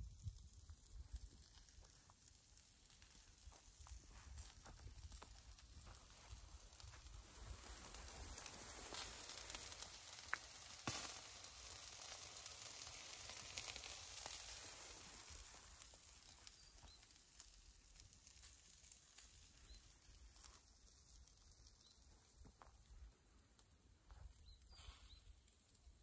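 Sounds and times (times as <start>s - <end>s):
chicken sizzling over embers: 0.0s - 26.0s
sharp pops: 8.8s - 12.2s.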